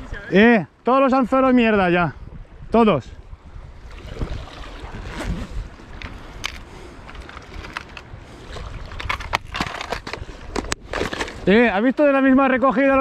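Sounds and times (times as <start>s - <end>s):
wind rumble on microphone: 1.2s - 11.8s
seawater lapping and sloshing: 3.4s - 11.4s.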